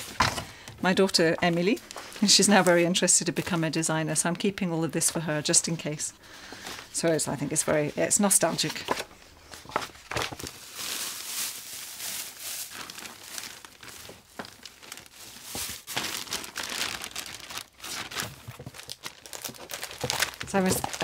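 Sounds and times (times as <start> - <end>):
plastic bags crinkling: 6.5 - 21.0.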